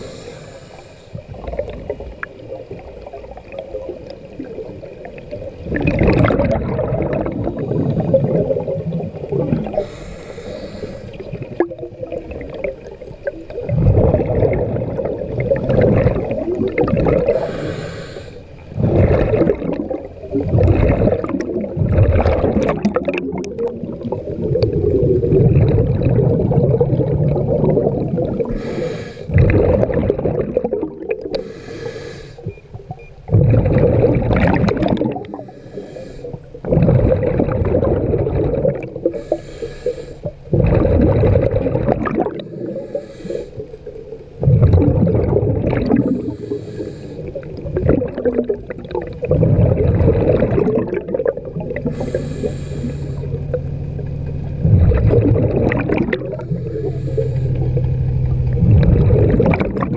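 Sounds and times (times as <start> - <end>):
diver inhaling through regulator: 0.0 - 1.3, 9.6 - 11.5, 17.2 - 19.7, 28.3 - 29.5, 31.3 - 32.6, 35.2 - 37.1, 39.0 - 40.4, 42.2 - 43.9, 45.9 - 47.6, 51.8 - 53.6, 55.8 - 58.0
bubbling exhale underwater: 0.0 - 59.9.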